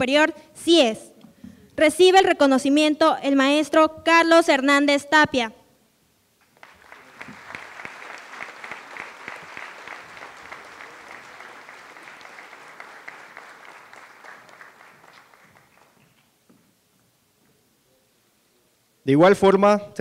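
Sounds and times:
audience applauding: 6.4s - 16.4s.

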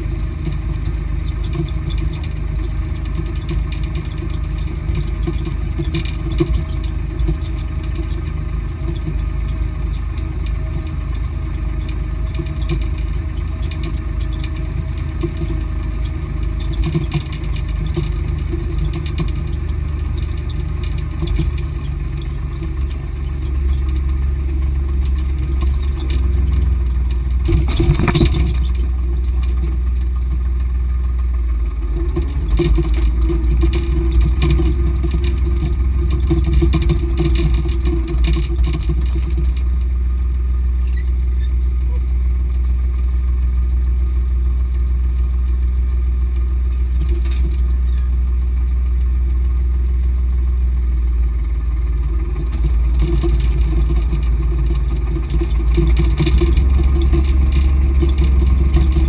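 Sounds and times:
cab rattling: 0.0s - 59.0s
tractor engine running: 0.0s - 59.0s
brief clatter: 25.1s - 30.5s.

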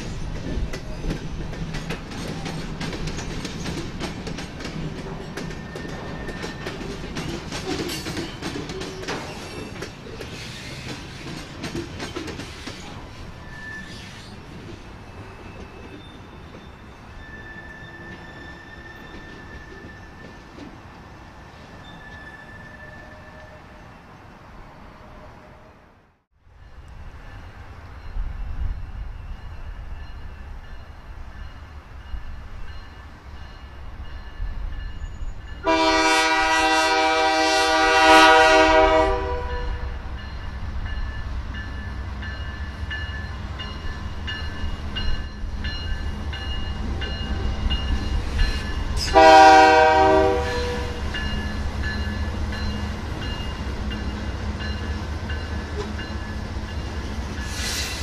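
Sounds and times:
freight train rumbling past: 0.0s - 58.0s
train horn blasts: 35.6s - 40.1s, 49.0s - 51.2s.

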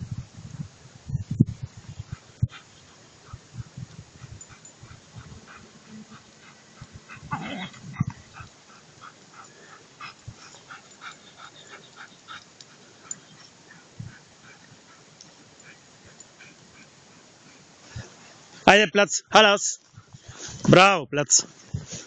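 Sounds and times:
dog whining: 4.6s - 8.2s.

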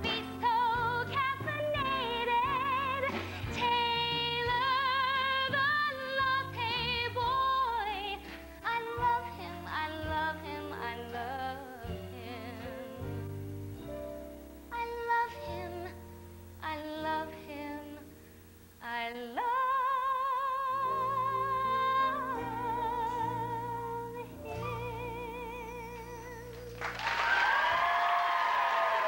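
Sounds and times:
woman singing with vibrato: 0.0s - 13.2s, 14.7s - 16.0s, 16.6s - 18.2s, 18.8s - 27.0s
audience applause: 26.6s - 29.0s.

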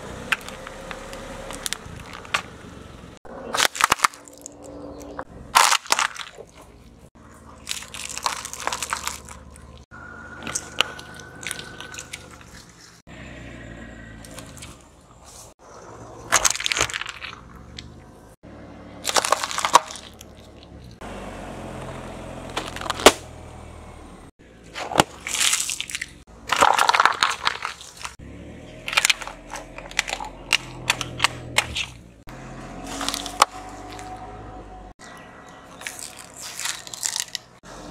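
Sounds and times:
sharp crack: 0.3s - 6.5s, 22.5s - 23.4s
crunchy snacks crunching: 3.4s - 13.0s, 16.3s - 17.8s, 19.0s - 21.0s, 24.7s - 28.2s, 28.8s - 32.0s, 32.8s - 34.2s, 35.6s - 37.7s
glass bottles cracking: 3.5s - 4.7s, 5.6s - 6.5s, 7.6s - 9.8s, 19.1s - 20.4s, 24.8s - 28.2s.

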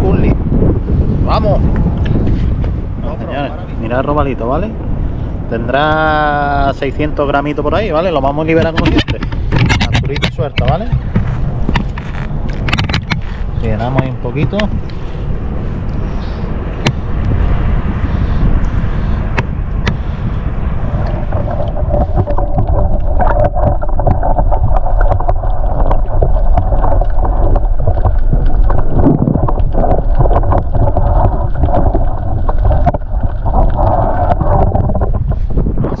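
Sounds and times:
wind rumbling on microphone: 0.0s - 36.0s
water sloshing and splashing: 19.4s - 35.8s.

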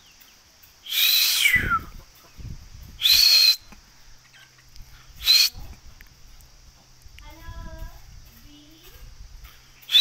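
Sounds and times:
chicks shrill calls: 0.0s - 5.6s, 9.5s - 10.0s.

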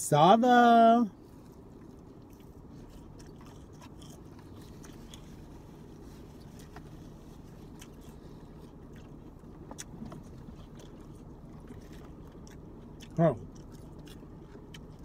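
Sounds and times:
steady low hum: 0.0s - 15.0s
people chewing salad: 1.3s - 15.0s.

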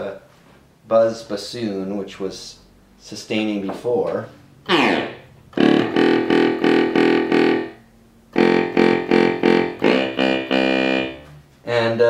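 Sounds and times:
buzzy synthesizer notes: 4.6s - 11.4s.

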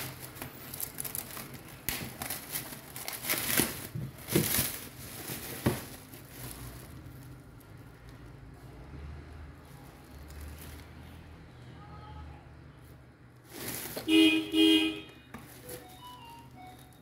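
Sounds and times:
plastic wrap crinkling: 0.0s - 8.5s, 9.6s - 11.2s, 13.4s - 17.0s.

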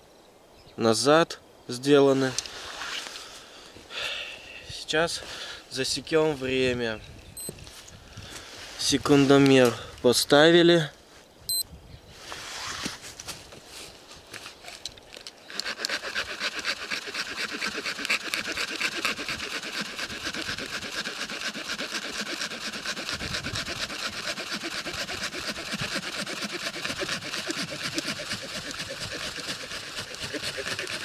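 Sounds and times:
log being hand-sawn: 15.5s - 31.0s.

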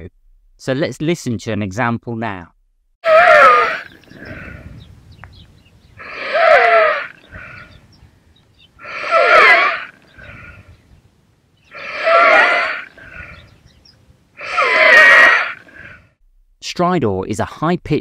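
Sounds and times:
harsh high-pitched breaths in: 4.1s - 4.8s, 6.0s - 7.8s, 8.8s - 10.8s, 11.7s - 13.6s.

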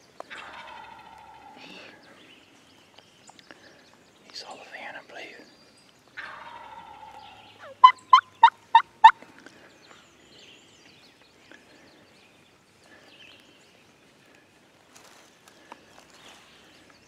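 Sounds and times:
turkey yelping: 6.2s - 9.2s.

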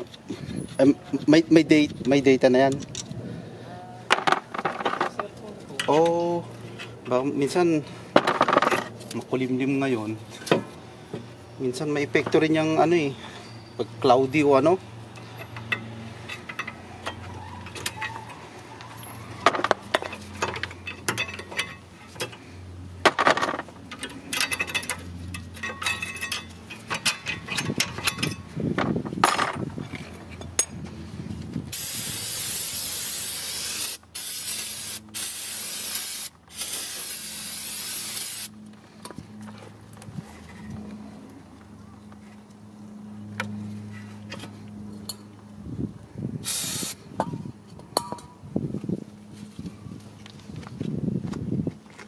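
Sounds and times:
aerosol can spraying: 31.8s - 38.5s, 46.5s - 47.0s.

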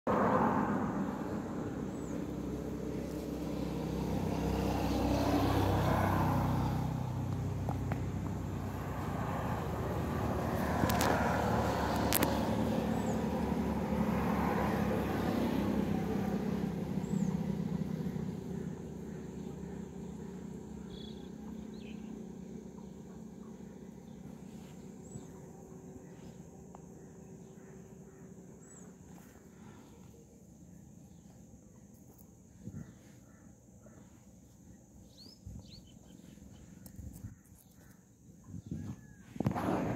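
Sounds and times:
engine humming: 0.1s - 37.2s.

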